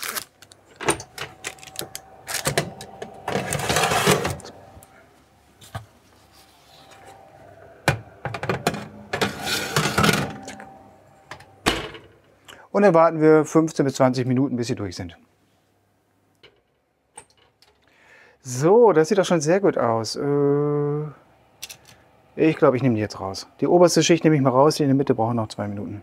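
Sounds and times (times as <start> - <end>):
metal trays scraping slides: 0.8 - 4.9, 6.2 - 11.2.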